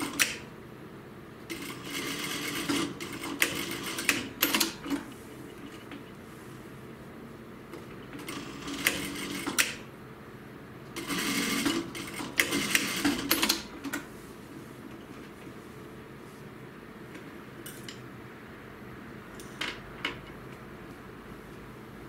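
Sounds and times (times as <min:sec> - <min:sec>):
sewing machine stitching: 0:11.0 - 0:13.7.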